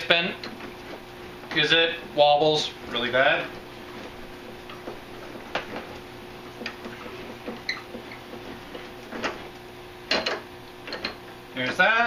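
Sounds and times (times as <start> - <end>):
crank clicking and ticking: 2.8 - 11.7.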